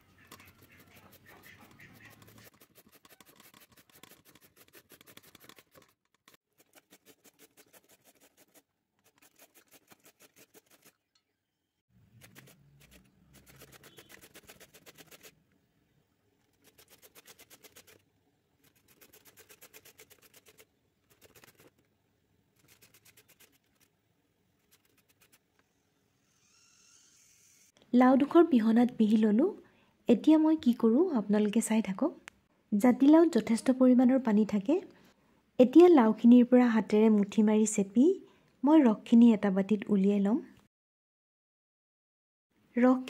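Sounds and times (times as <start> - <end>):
gourd scraping on grater: 0.0 - 10.9, 12.2 - 15.3, 16.5 - 18.0, 18.6 - 21.8.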